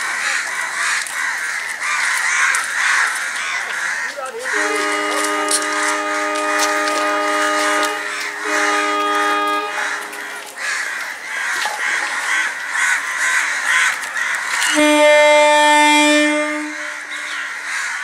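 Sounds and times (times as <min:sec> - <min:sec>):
crows cawing: 0:00.0 - 0:18.0
train horn blast: 0:04.5 - 0:10.6, 0:14.6 - 0:17.5.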